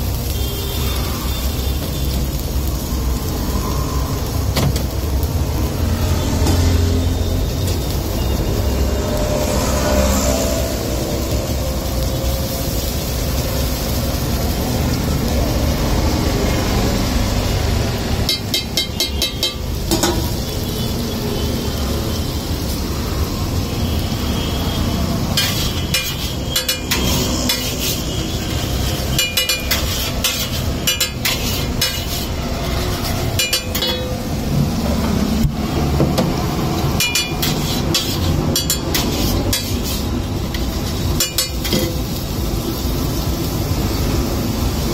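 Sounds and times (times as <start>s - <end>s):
food sizzling on a griddle: 0.0s - 44.9s
metal spatula clinking on griddle: 18.2s - 20.4s, 25.4s - 28.0s, 29.0s - 32.3s, 33.0s - 34.3s, 36.8s - 42.2s.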